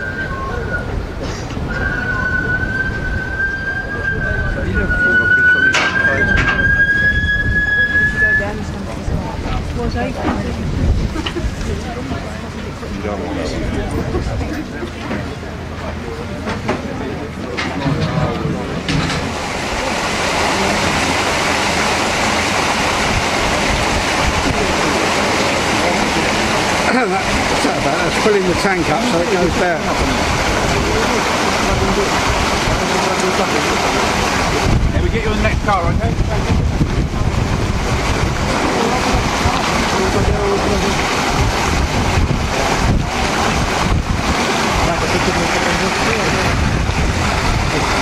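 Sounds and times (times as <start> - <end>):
wind buffeting microphone: 0.0 - 14.9, 18.0 - 48.0
water gushing from pipe into tank: 18.6 - 48.0.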